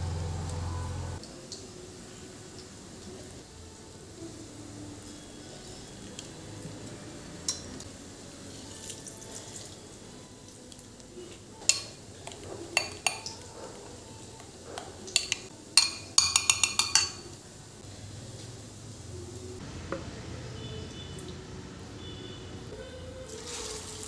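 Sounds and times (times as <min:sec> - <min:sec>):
utensil clinking on glass bowl: 0:11.6 - 0:13.8, 0:14.8 - 0:17.3.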